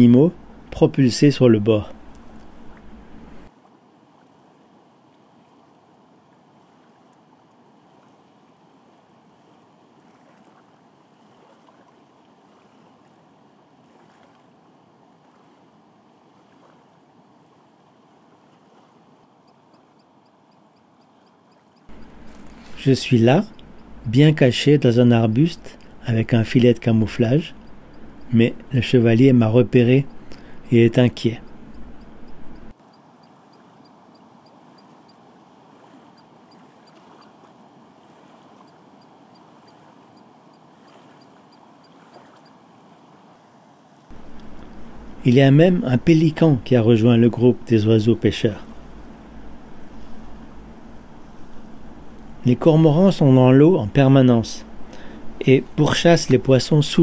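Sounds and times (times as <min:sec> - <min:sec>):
faint high ticks: 0:02.1 - 0:03.0, 0:19.4 - 0:24.4, 0:25.3 - 0:35.2, 0:44.1 - 0:45.0.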